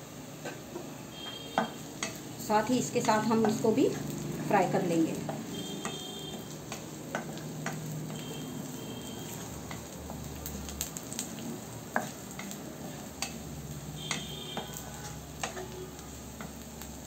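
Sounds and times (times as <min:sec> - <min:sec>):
onions sizzling in oil: 0:00.0 - 0:17.0
wooden spatula scraping wok: 0:00.4 - 0:17.0
spatula knocking on wok: 0:01.2 - 0:02.2, 0:03.0 - 0:03.7, 0:05.2 - 0:08.4, 0:11.9 - 0:15.8.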